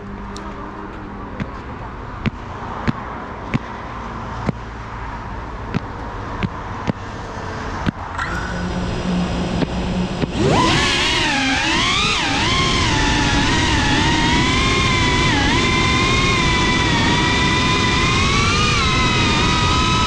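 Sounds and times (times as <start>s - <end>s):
road traffic: 0.0s - 20.0s
steady hum: 5.5s - 20.0s.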